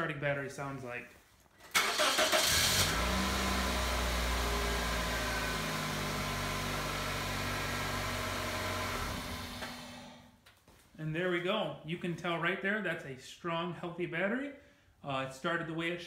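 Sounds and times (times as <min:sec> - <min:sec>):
car engine starting and idling: 0:01.7 - 0:10.3.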